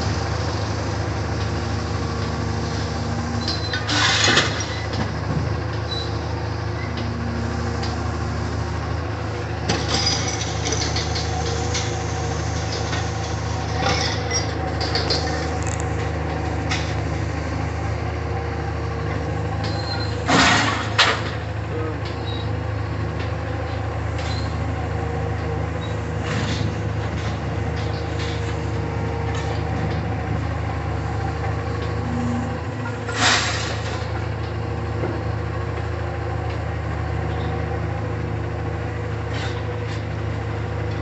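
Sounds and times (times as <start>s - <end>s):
diesel engine running: 0.0s - 41.0s
scrap metal clanking: 19.6s - 21.4s, 31.8s - 34.1s.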